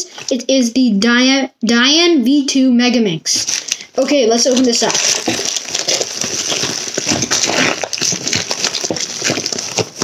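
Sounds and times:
plastic mailer crinkling: 3.4 - 10.0.

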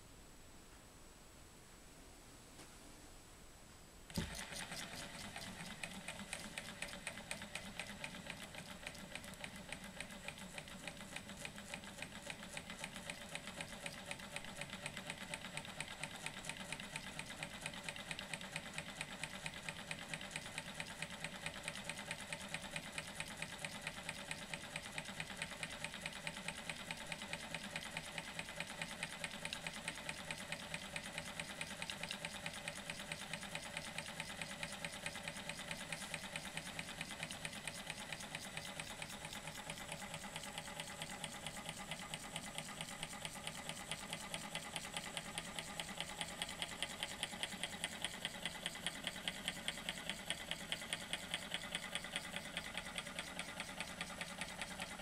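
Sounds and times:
hot-air engine clicking: 4.1 - 15.4.

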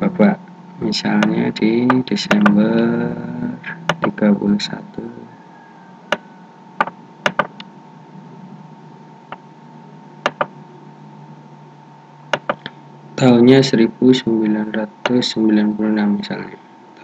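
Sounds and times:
faint steady low hum: 0.0 - 17.0
computer mouse clicks: 6.8 - 7.7, 10.2 - 10.5, 12.3 - 12.8.

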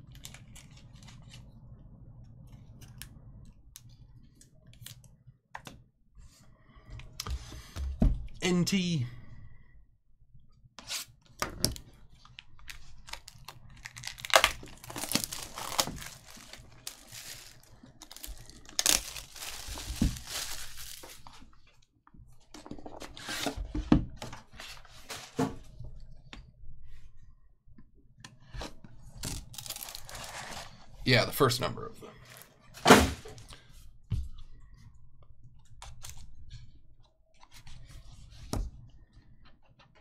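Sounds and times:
plastic shrink wrap tearing: 13.0 - 21.3, 29.2 - 30.4.

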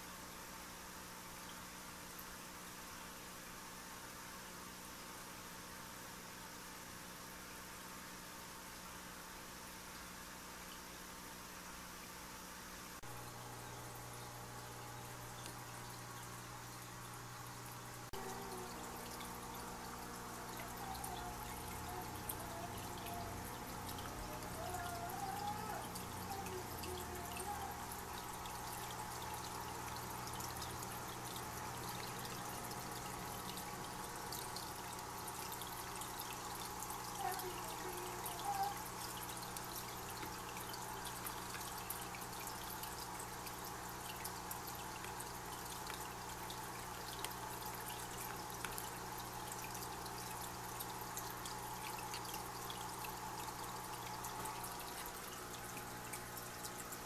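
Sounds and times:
filter low hum: 12.9 - 57.0
water trickling: 13.0 - 57.0.

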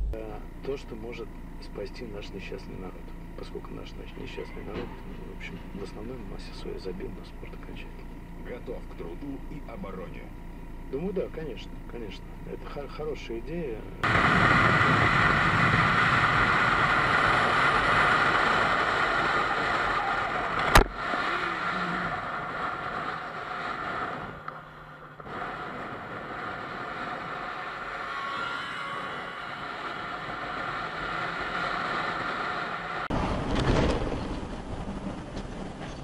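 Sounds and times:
motorcycle engine: 0.0 - 36.0
wind rush on microphone: 14.0 - 36.0.

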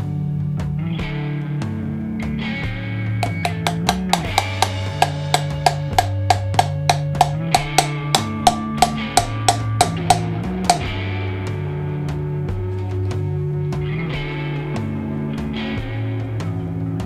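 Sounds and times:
guitar background music: 0.0 - 17.0
hammer tapping on steel punch: 3.2 - 10.9.

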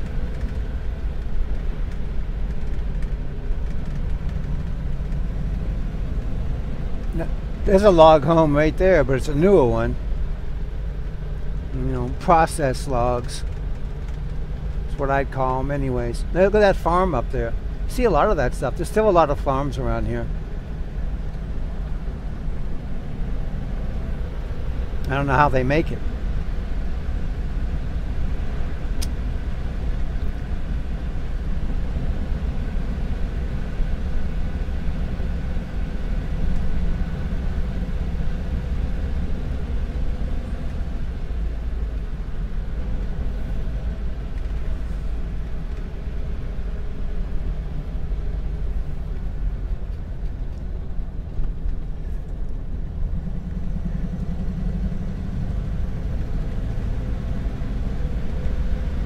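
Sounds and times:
car engine running: 0.0 - 59.0
road noise: 0.0 - 59.0.

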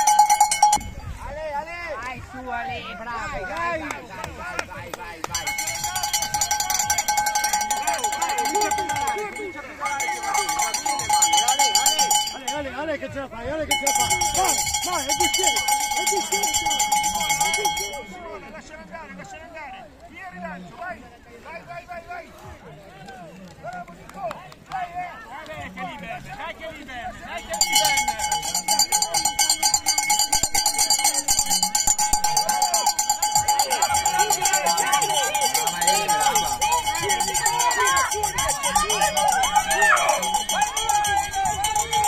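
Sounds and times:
cowbell shaken fast: 0.0 - 1.3, 5.2 - 12.8, 13.6 - 18.5, 27.3 - 42.0
faint voices: 0.0 - 42.0.

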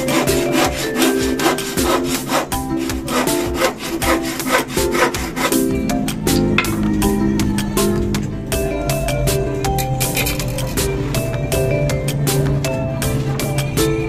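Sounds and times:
handsaw cutting wood: 0.0 - 5.8
background music: 0.0 - 14.0.

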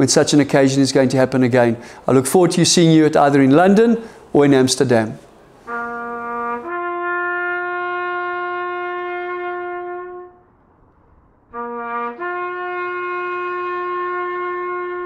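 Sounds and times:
trumpet holding long notes: 5.6 - 10.5, 11.5 - 15.0.

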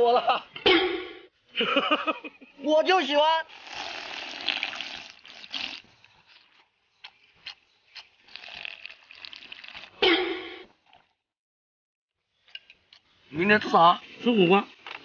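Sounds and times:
slurping soup: 3.4 - 11.2
wet mouth clicks: 3.5 - 10.0.

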